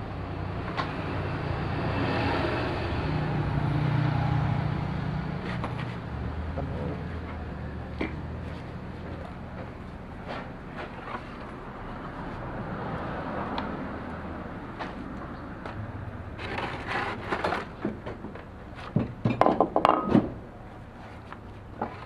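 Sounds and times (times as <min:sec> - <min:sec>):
hard objects knocking and clattering: 0:17.2 - 0:20.4.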